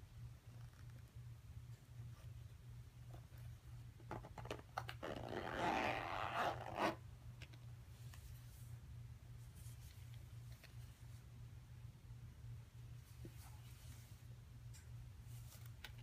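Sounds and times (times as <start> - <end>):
zipper being pulled shut: 4.8 - 7.0.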